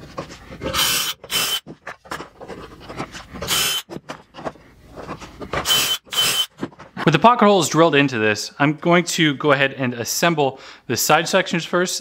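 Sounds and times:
drill bit cutting wood: 0.8 - 1.6, 3.5 - 3.9, 5.6 - 6.5
drill whine: 0.8 - 1.6, 3.5 - 3.9, 5.6 - 6.5.

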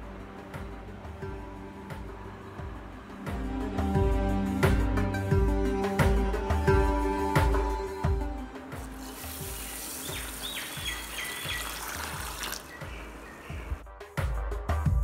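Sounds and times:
background music with low beat: 0.0 - 15.0
water pouring into bowl of rice: 9.1 - 12.7.

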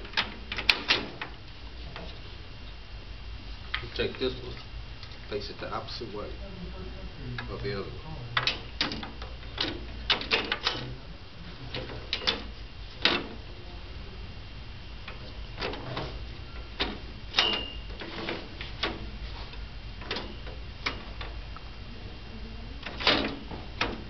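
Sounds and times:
clicks and knocks of metal frame: 11.7 - 13.4, 22.8 - 24.0.

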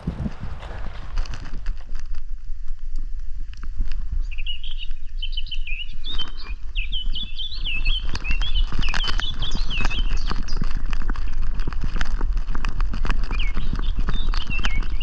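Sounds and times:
footsteps on forest track: 0.0 - 2.3, 6.0 - 15.0
steady low rumble: 0.0 - 14.2
songbird singing: 3.9 - 12.2, 12.9 - 15.0.

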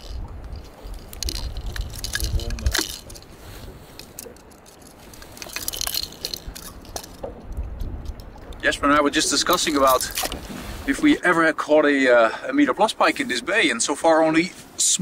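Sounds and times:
wind rumble on microphone: 0.0 - 4.2, 5.0 - 10.9.

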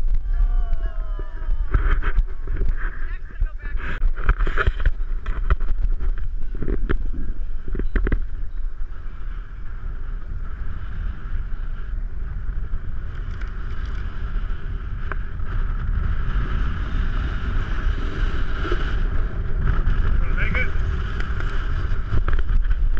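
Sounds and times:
wind on microphone: 0.0 - 22.9
snow tube sliding on snow: 8.8 - 22.9.

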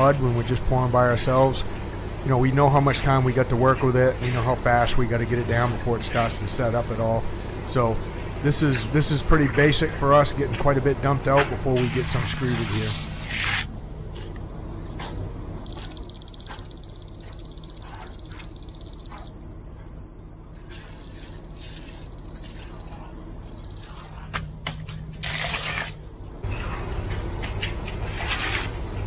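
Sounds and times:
scraping noise: 11.3 - 13.8
laser receiver beeping: 15.7 - 24.0.

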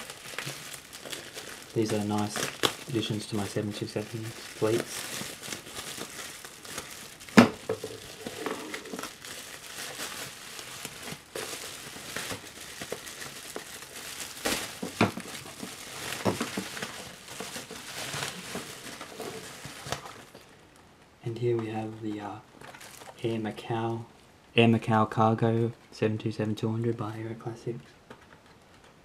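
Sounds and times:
bubble wrap crinkling: 0.0 - 20.9, 21.8 - 23.8.

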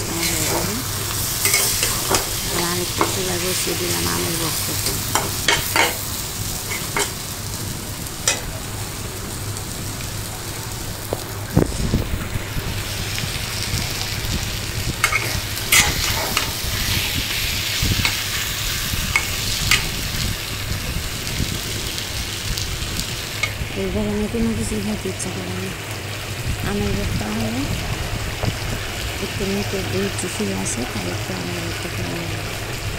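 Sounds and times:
food sizzling in a pan: 0.0 - 32.9
spatula scraping a metal pan: 15.0 - 17.2.

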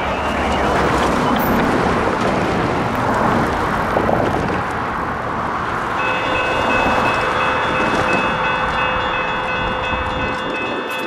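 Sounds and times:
cars passing: 0.0 - 11.0
crossing bells ringing: 5.9 - 11.0.

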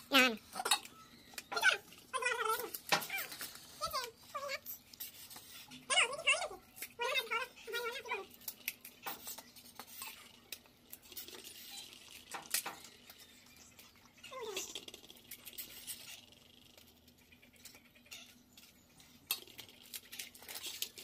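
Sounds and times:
dry shells cracking: 8.4 - 13.3, 17.6 - 21.0.

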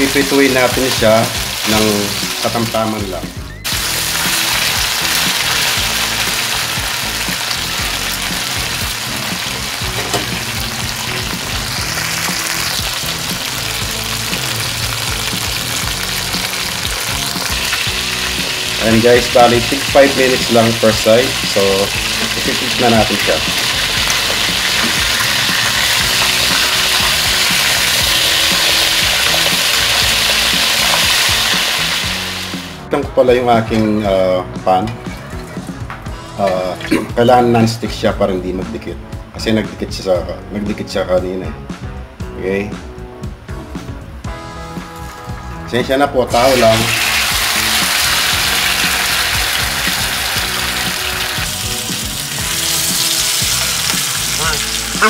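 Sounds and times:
meat sizzling in a wok: 0.0 - 2.9, 3.6 - 32.8, 46.3 - 55.0
background music: 0.0 - 55.0.

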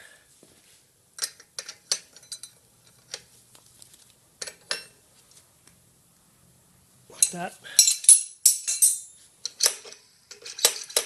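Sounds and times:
spanners clinking on metal: 1.2 - 3.1, 7.2 - 11.0.

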